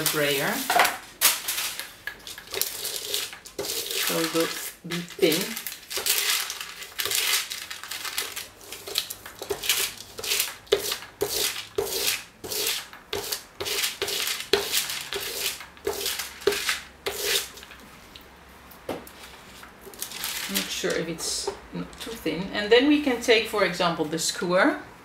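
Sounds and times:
paint brayer rolling over paper: 0:02.3 - 0:07.3.

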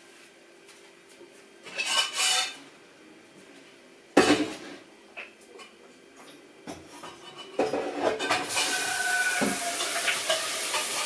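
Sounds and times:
dishes clattering: 0:06.7 - 0:11.0.

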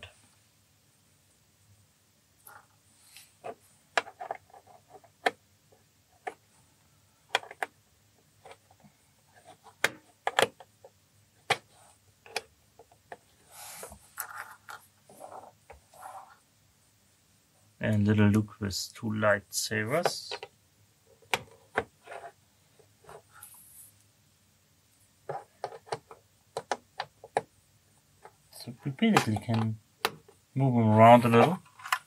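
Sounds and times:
plastic clicks and taps: 0:09.8 - 0:10.7.

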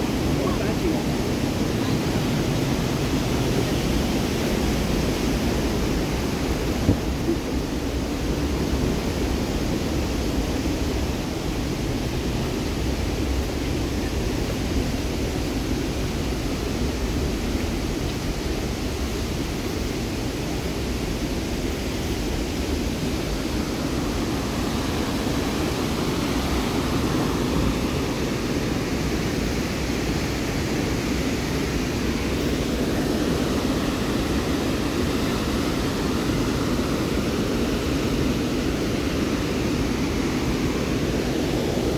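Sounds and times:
whitewater rushing: 0:00.0 - 0:41.9.

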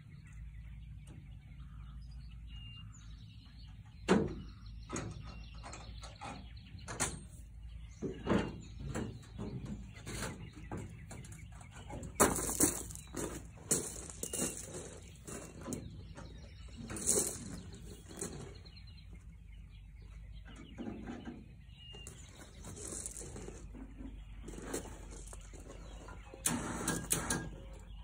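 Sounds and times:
metal knocks and clanks: 0:08.0 - 0:19.4, 0:20.0 - 0:28.0.

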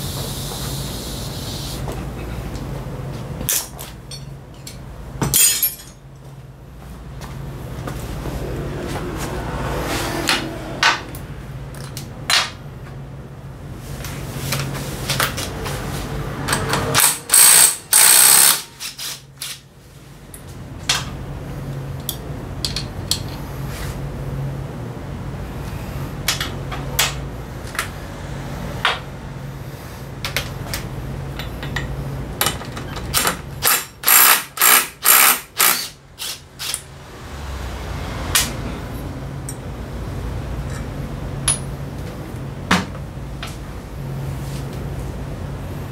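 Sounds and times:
steady low hum: 0:00.9 - 0:15.0
ratchet clicking: 0:17.0 - 0:19.6, 0:33.2 - 0:36.9.

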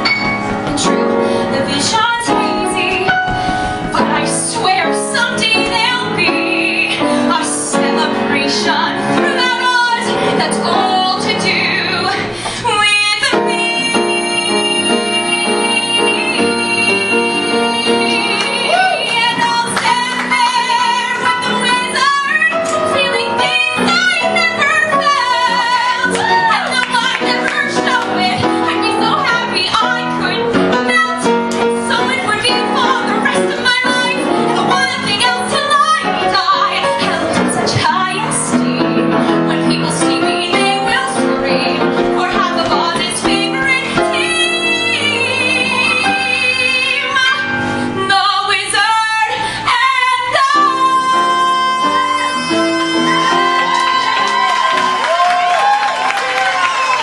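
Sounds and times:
piano accompaniment: 0:00.0 - 0:57.0
woman singing into microphone: 0:00.8 - 0:54.4.

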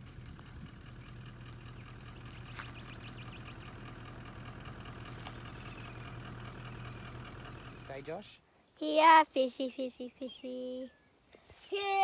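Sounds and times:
insects chirping: 0:00.0 - 0:07.9.

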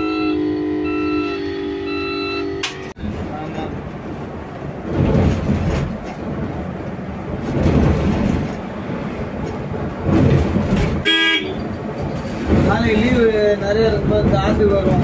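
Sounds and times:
bus road rumble: 0:00.0 - 0:15.0.

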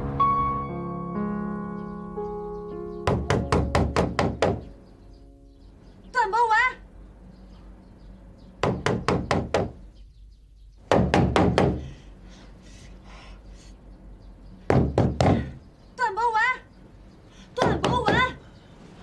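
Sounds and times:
knuckles knocking on a door: 0:03.0 - 0:04.7, 0:08.6 - 0:09.8, 0:10.9 - 0:11.9, 0:14.7 - 0:15.5, 0:17.6 - 0:18.4.

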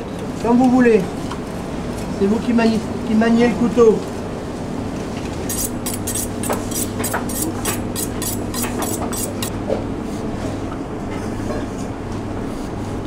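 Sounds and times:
knife honed on sharpening steel: 0:05.5 - 0:09.5.

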